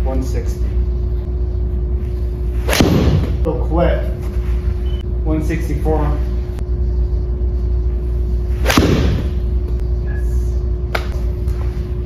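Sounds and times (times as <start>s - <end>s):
steady hum: 0.0s - 12.0s
ball hitting screen: 2.6s - 3.4s, 8.6s - 9.5s.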